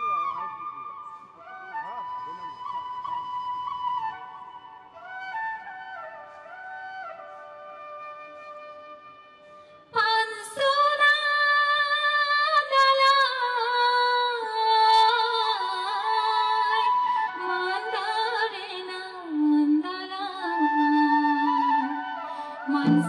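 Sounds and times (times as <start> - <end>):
flute melody: 0.0 - 10.0, 20.4 - 23.0
woman singing into a microphone: 9.9 - 23.0.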